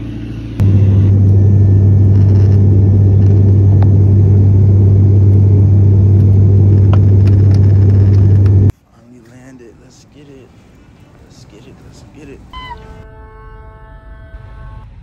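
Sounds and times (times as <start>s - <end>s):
airliner cabin drone: 0.0s - 8.7s.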